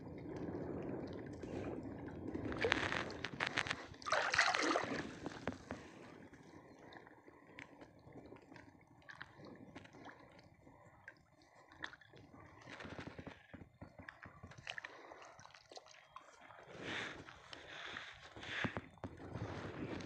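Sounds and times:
seawater sloshing and splashing: 1.1 - 6.2.

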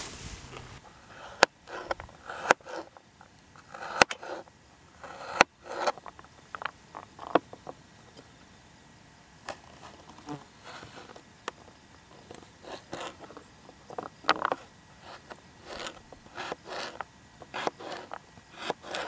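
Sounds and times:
knife scraping: 1.0 - 3.0, 3.6 - 6.0, 12.2 - 13.5, 14.4 - 19.0.

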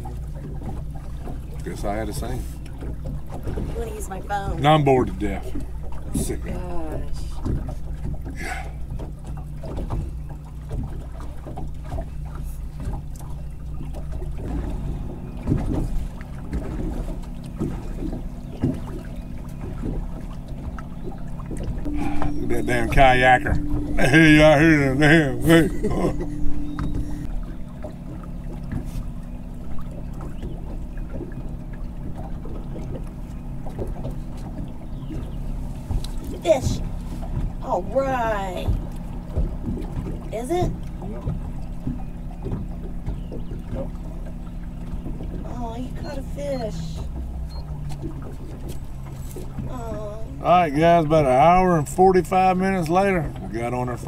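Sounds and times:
outboard motor humming: 0.0 - 54.0
water lapping against boat hull: 0.0 - 54.0.

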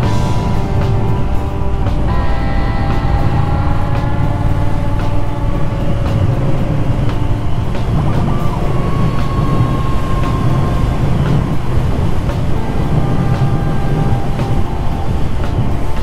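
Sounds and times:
motorcycle engine running: 0.0 - 16.0
wind rumble on microphone: 0.0 - 16.0.

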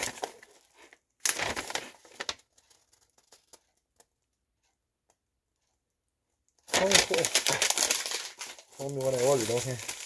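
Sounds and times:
plastic mailer crinkling: 0.0 - 4.0, 6.7 - 10.0.

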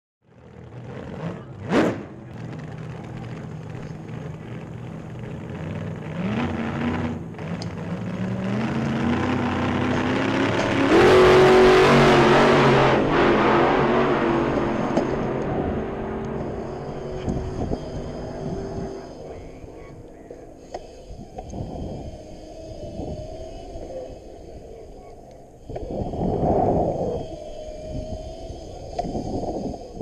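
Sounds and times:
pit bike engine revving: 0.3 - 30.0
wind on microphone: 8.9 - 30.0.

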